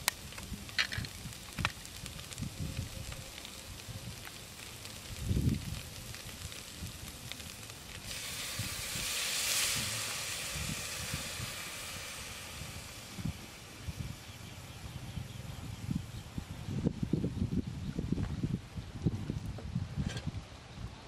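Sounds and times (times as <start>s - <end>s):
soup sizzling and hissing: 0.0s - 16.1s.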